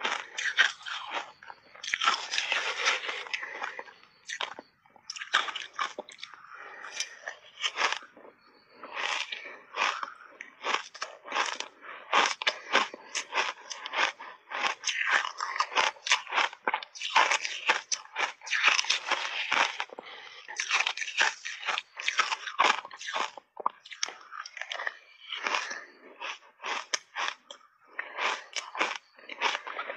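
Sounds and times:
shaved ice crunching: 0.0 - 6.0, 10.6 - 19.9.

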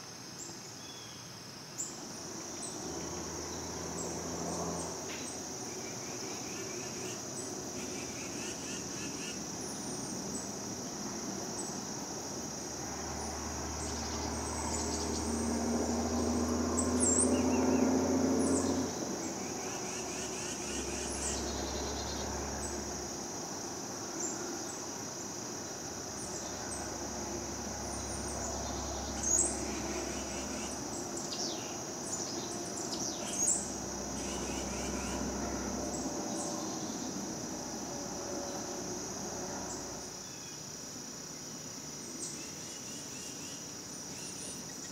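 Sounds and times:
insects droning: 0.0 - 44.9.

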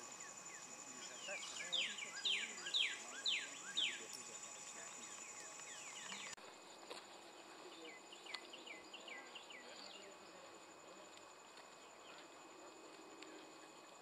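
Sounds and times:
insects droning: 0.0 - 14.0
bird whistling song: 1.2 - 4.0.

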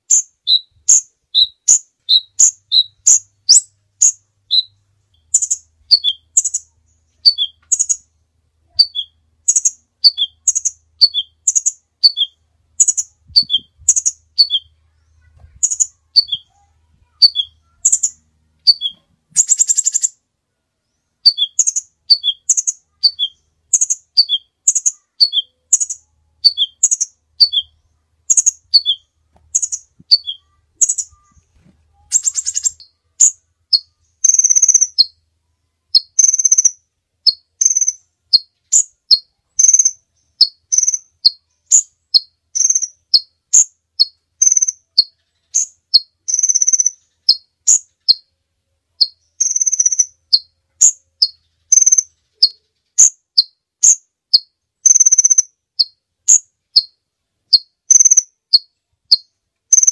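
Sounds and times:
bird buzzy rattle: 34.2 - 35.0.

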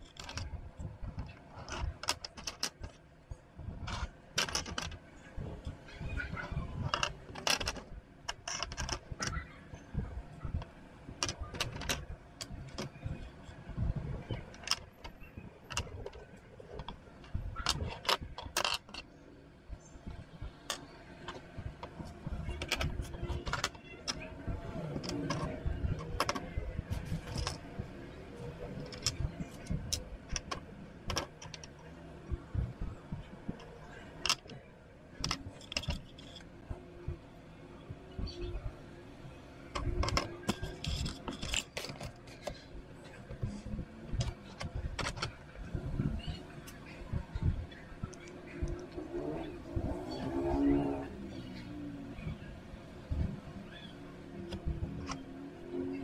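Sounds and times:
plastic pieces clicking on desk: 0.0 - 0.5, 1.2 - 3.0, 3.9 - 5.0, 6.8 - 9.4, 10.6 - 13.3, 14.2 - 19.1, 20.1 - 27.7, 28.6 - 31.8, 33.2 - 34.6, 35.2 - 36.5, 39.7 - 42.6, 43.3 - 45.4, 48.0 - 49.0.

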